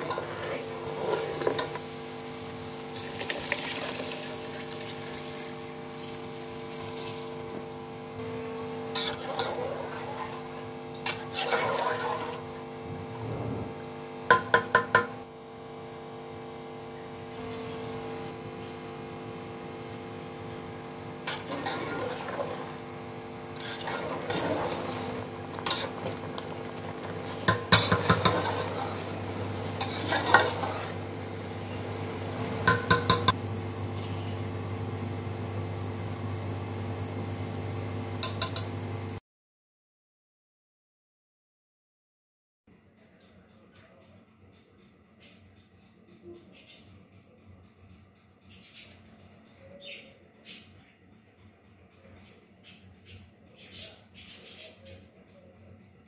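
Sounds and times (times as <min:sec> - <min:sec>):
steady hum and hiss: 0:00.0 - 0:39.1
metal spoon tapping pot: 0:32.6 - 0:33.4, 0:38.2 - 0:38.7.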